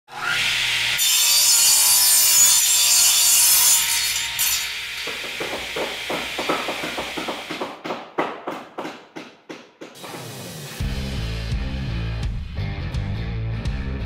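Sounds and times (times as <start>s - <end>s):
handsaw cutting wood: 0.1s - 7.8s.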